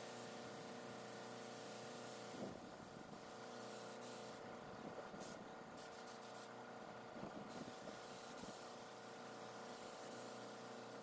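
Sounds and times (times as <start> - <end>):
spray gun hissing: 0.0 - 2.5, 7.5 - 11.0.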